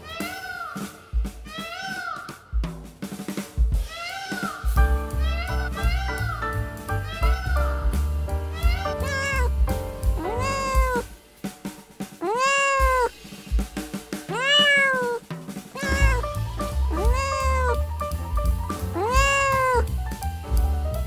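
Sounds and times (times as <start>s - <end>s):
background music with drum beat: 0.0s - 21.0s
cat meowing: 8.5s - 9.6s, 10.2s - 11.1s, 12.2s - 13.2s, 14.3s - 15.2s, 15.8s - 17.8s, 18.9s - 19.9s.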